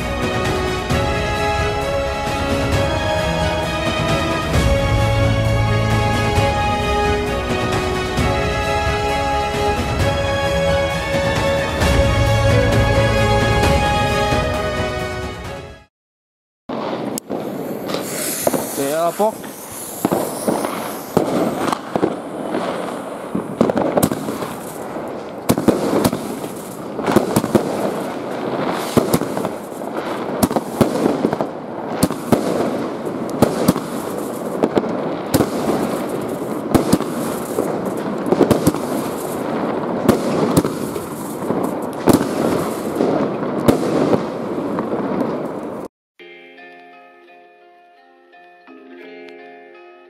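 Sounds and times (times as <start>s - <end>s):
firework crackle: 0.0s - 12.1s, 16.7s - 45.9s
firework launch bangs: 16.7s - 45.9s.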